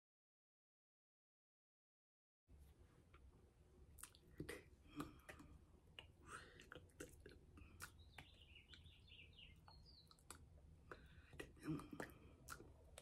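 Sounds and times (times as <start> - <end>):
lip smacks and breaths: 3.9 - 13.0.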